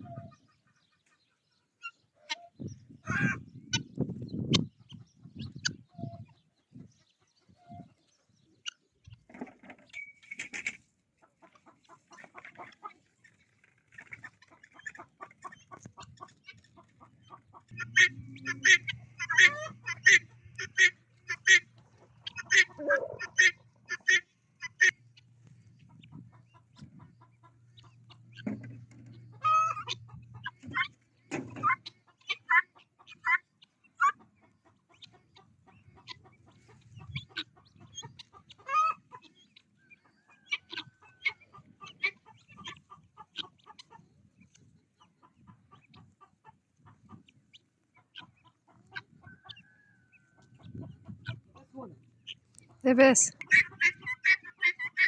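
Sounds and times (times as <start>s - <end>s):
long steady-pitched bird calls: 0.0s - 9.1s
poultry clucking and chattering: 0.0s - 55.0s.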